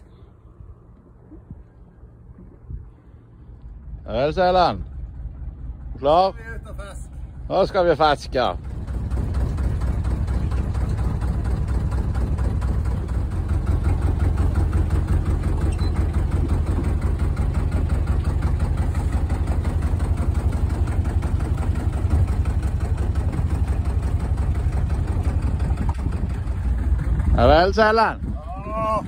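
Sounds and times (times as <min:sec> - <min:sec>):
boat engine droning: 0:00.0 - 0:29.0.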